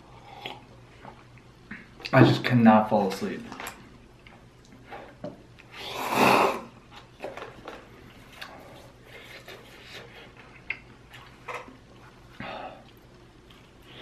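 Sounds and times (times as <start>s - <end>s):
slurping noodles: 5.7s - 6.7s.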